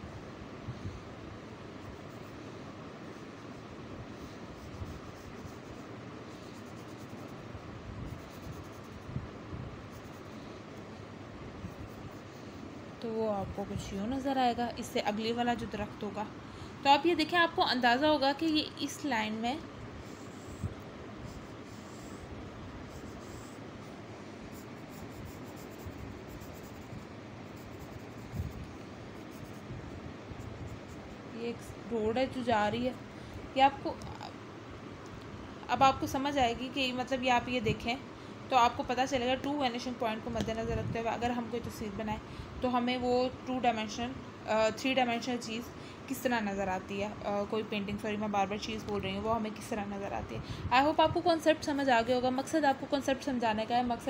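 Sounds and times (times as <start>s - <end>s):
pencil scratching on paper: 1.8s - 9.1s, 9.8s - 10.8s, 11.7s - 12.6s, 20.0s - 22.3s, 22.9s - 23.9s, 24.5s - 29.7s.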